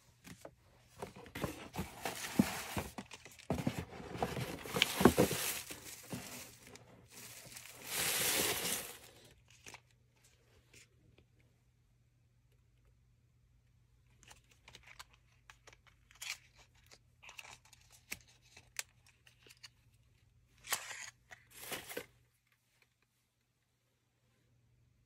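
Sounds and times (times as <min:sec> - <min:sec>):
paper packing filler crinkling: 0:01.1 - 0:09.3.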